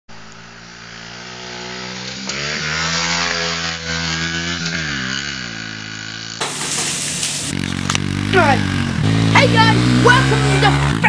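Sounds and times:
small motorbike engine revving: 0.1 - 11.0.

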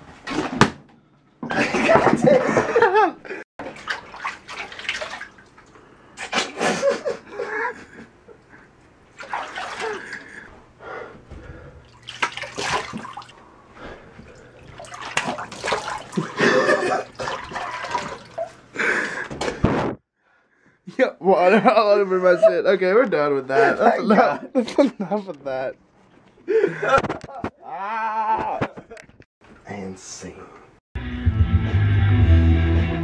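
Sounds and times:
water splashing in a sink: 3.6 - 6.5, 9.1 - 10.5, 11.8 - 13.4, 14.2 - 18.6.

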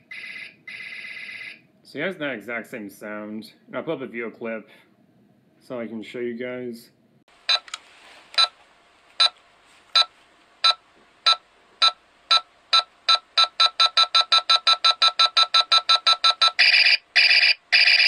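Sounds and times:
timer beeps: 10.0 - 16.9.

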